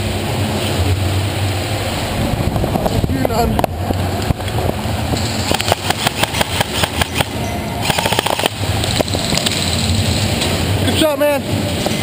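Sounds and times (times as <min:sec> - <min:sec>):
airsoft guns firing: 0:05.5 - 0:08.6.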